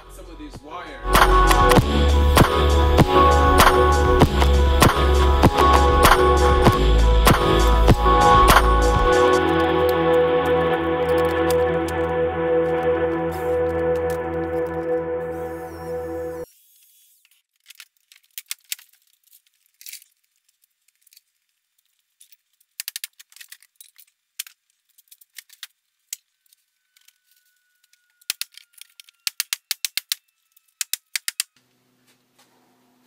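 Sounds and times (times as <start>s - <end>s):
small hard objects clicking: 17.5s - 31.6s.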